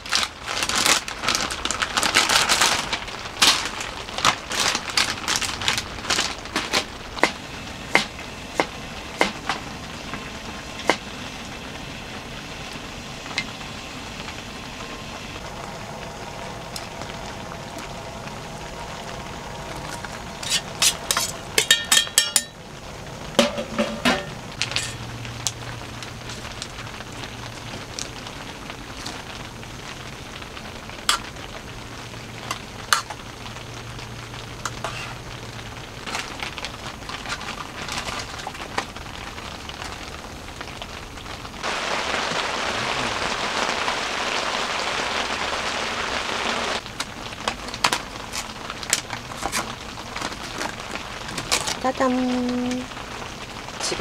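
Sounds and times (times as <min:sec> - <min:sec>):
plastic packets crinkling: 0:00.0 - 0:07.3, 0:32.5 - 0:41.3, 0:46.8 - 0:54.0
gas burner humming: 0:02.7 - 0:37.7.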